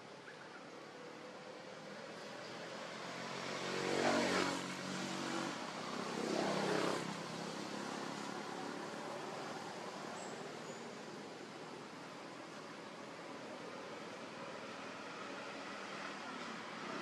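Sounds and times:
motor vehicle engine passing by: 2.4 - 10.8.

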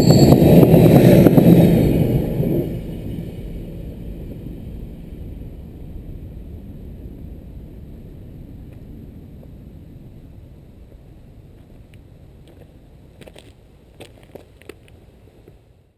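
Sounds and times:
train wagons rolling on rails: 0.0 - 15.6.

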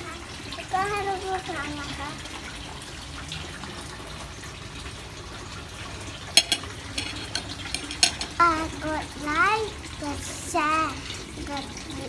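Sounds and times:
running water: 0.0 - 12.0
cutlery clinking on a plate: 6.4 - 8.4.

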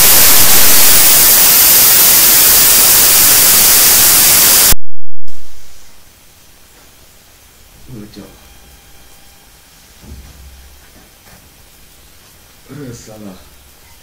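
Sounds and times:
loud static hiss: 0.0 - 14.0
faint background hiss: 5.3 - 14.0.

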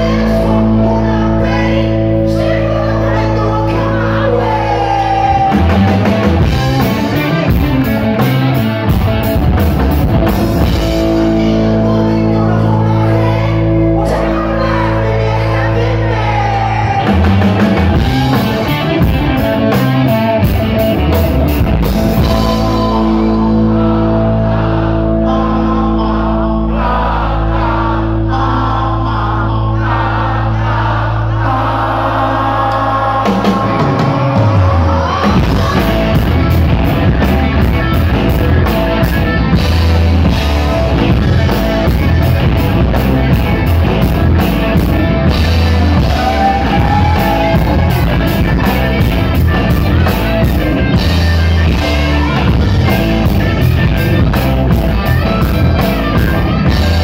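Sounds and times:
hard rock band playing: 0.0 - 57.0
man singing high: 22.2 - 30.4.

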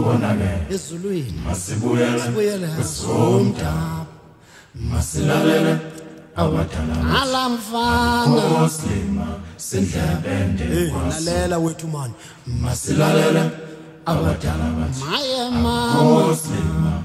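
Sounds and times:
voices singing a chant: 0.0 - 17.0.

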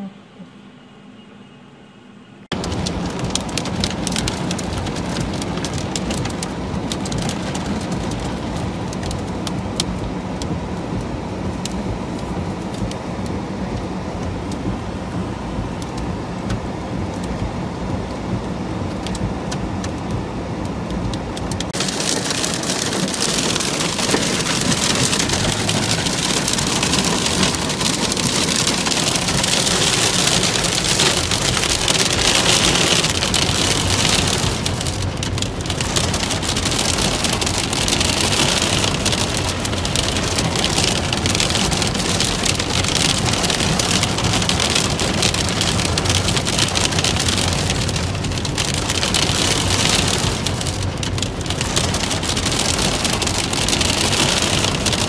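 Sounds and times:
hailstones ticking on car: 2.5 - 55.0
heavy rain drumming on car roof: 2.5 - 55.0.

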